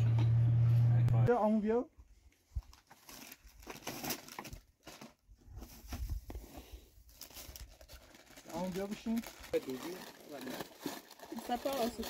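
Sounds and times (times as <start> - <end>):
packaging crinkling: 2.6 - 5.9, 7.1 - 12.0.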